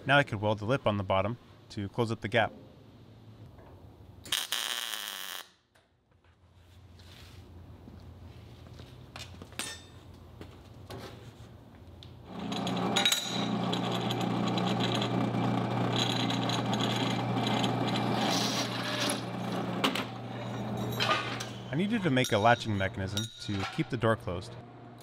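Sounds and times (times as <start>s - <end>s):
drill bit grinding metal: 12.3s - 21.7s
drill press motor hum: 12.3s - 21.7s.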